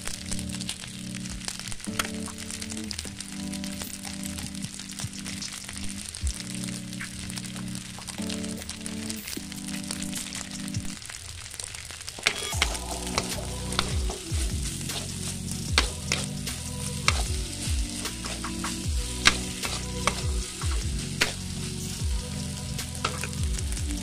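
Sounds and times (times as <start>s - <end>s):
hot oil sizzling: 0.0s - 24.0s
spatula scraping a wok: 12.2s - 23.4s.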